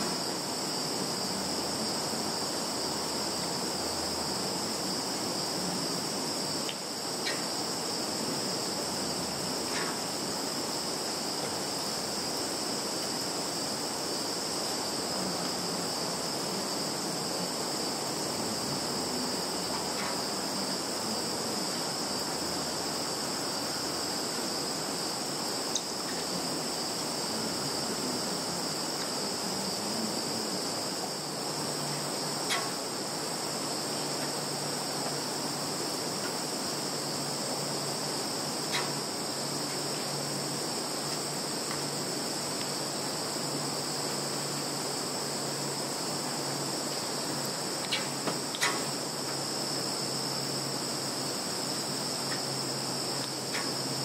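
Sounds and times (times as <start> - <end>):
field insects chirring: 0.0 - 54.0
soft even hiss: 0.0 - 54.0
faint ticks: 6.6 - 7.4, 19.7 - 20.2, 32.5 - 32.8, 38.7 - 39.0, 47.8 - 49.4.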